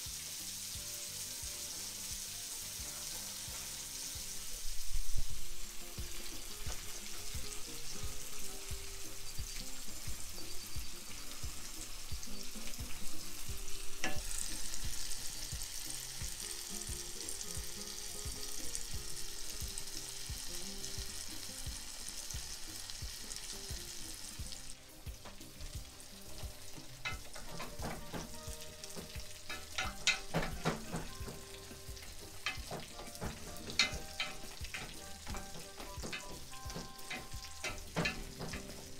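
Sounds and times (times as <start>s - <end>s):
cumbia music with steady beat: 0.0s - 38.9s
fish sizzling in hot oil: 0.0s - 38.9s
spoon scraping a pot: 14.0s - 15.4s, 26.6s - 38.9s.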